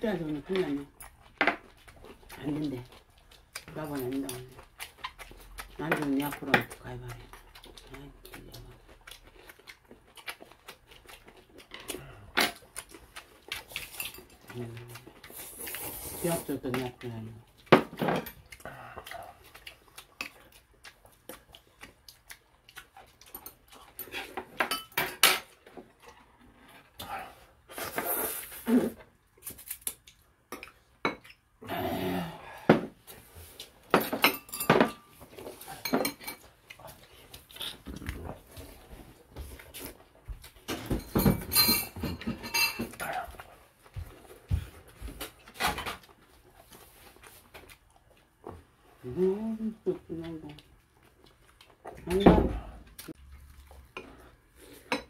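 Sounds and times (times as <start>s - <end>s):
people eating: 0.2s - 29.7s
utensils clinking against bowls: 33.9s - 35.2s, 40.7s - 43.1s.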